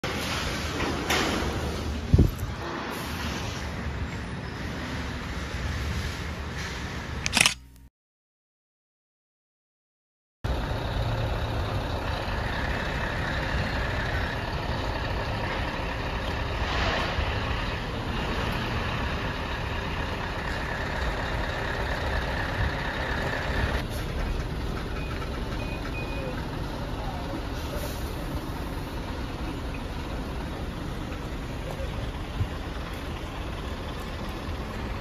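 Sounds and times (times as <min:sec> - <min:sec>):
truck engine running: 0:10.5 - 0:35.0.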